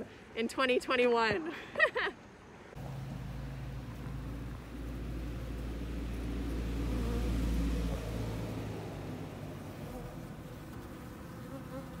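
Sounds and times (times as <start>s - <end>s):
low rumble: 2.8s - 10.5s
honeybees buzzing: 2.8s - 12.0s.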